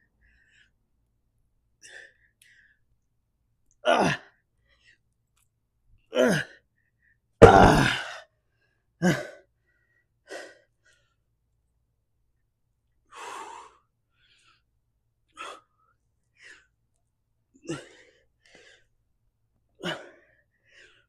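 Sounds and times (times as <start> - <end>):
man breathing hard: 13.1 - 14.7, 19.8 - 21.0.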